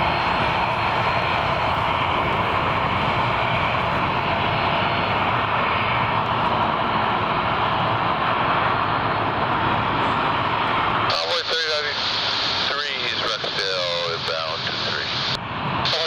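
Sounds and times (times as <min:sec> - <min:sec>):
jet engines rushing with whine: 0:00.0 - 0:16.0.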